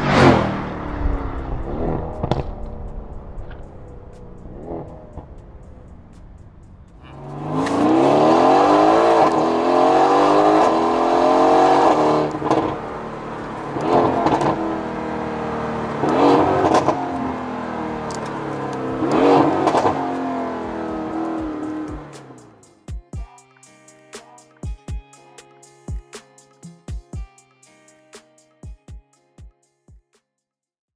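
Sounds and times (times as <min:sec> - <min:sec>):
engine rev bursts with crackle: 0:00.0 - 0:22.7
car engine accelerating: 0:00.0 - 0:22.8.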